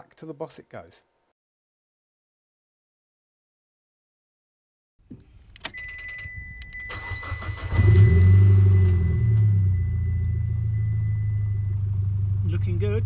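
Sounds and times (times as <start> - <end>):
car starter cranking: 5.4 - 11.2
car engine idling: 6.9 - 13.0
steady high-pitched tone: 8.2 - 13.0.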